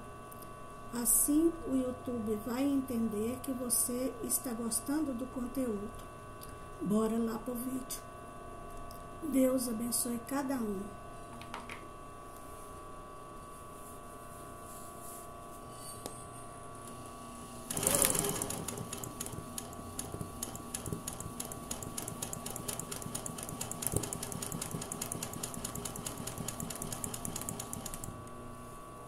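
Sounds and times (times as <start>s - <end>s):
faint steady hum: 0.0s - 29.0s
sewing machine needle clatter: 17.7s - 28.2s.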